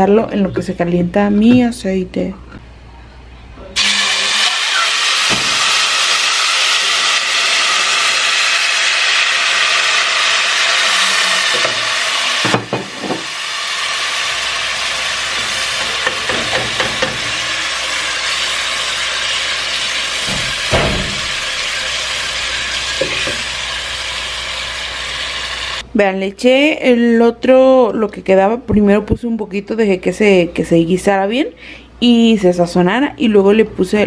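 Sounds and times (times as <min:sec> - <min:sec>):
sauce sizzling in hot oil: 0:03.8 - 0:25.8.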